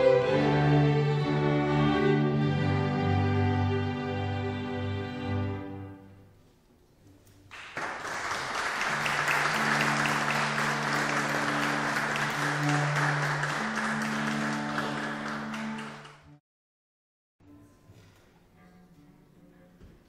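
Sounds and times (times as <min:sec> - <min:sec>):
audience applause: 0:07.5 - 0:16.4.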